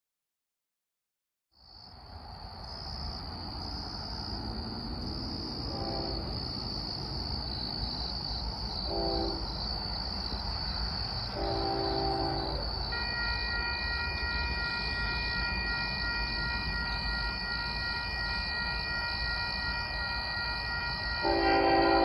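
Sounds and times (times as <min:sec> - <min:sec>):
crickets chirping: 0:01.6 - 0:22.0
train rumble: 0:02.0 - 0:22.0
train horn blasts: 0:05.7 - 0:06.3, 0:08.9 - 0:09.5, 0:11.3 - 0:18.5, 0:19.7 - 0:22.0.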